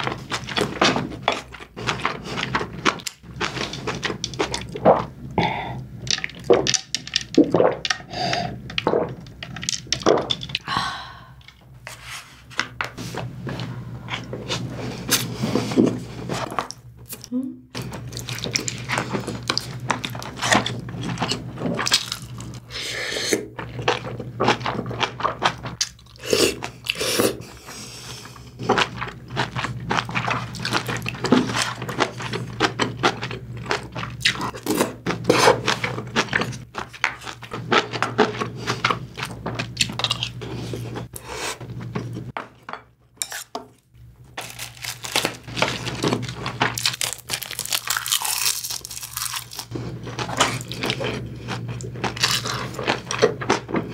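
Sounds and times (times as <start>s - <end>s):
low steady hum: 0.0s - 53.9s
chewing food: 44.4s - 53.9s.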